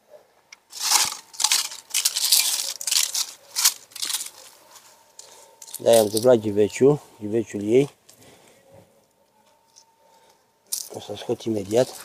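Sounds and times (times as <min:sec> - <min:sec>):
hand scraping potting soil: 0:00.7 - 0:05.0.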